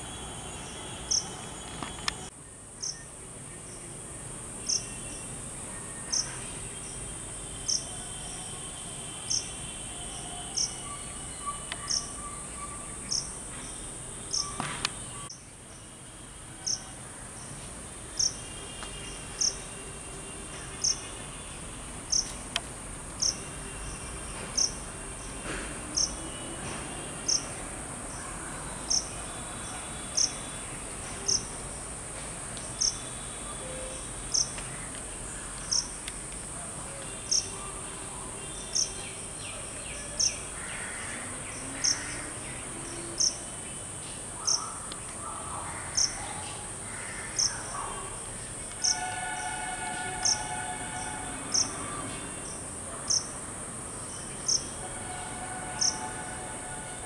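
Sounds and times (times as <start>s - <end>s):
high-pitched insect drone: 48.8s - 52.0s, 54.5s - 57.0s.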